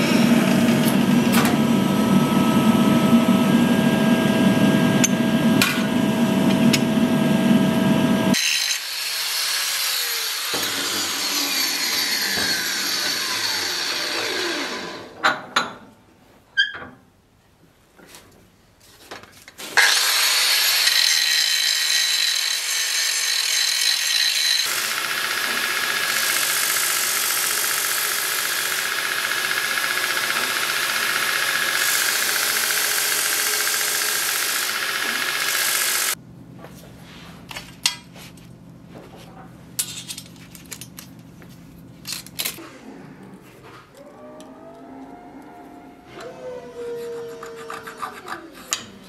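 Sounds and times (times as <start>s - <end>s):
belt grinder grinding steel: 8.3s - 15.2s, 19.8s - 36.2s.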